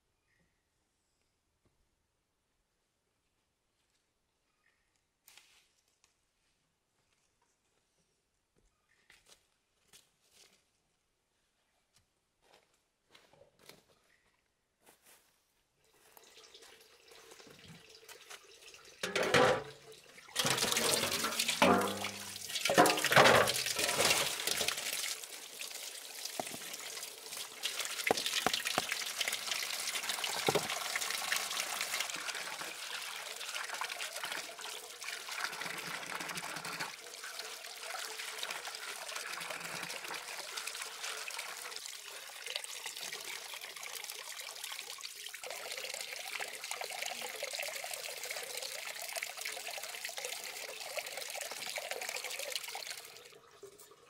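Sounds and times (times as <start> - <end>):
tap water running into basin: 16.0 - 54.0.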